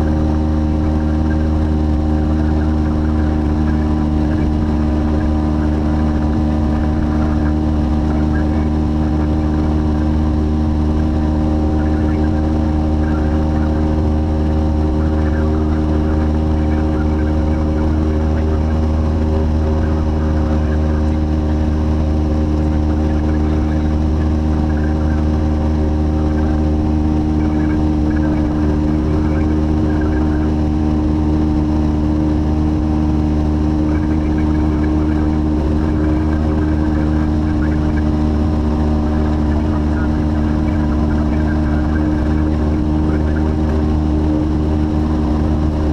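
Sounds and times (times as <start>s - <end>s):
light aircraft engine drone: 0.0s - 45.9s.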